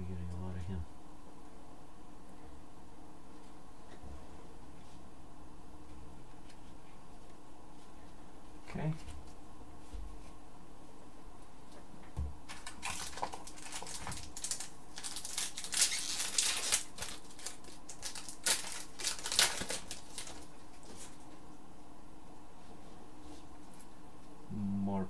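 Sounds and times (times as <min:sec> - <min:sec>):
foil wrapper crinkling and tearing: 0:12.5 - 0:21.2.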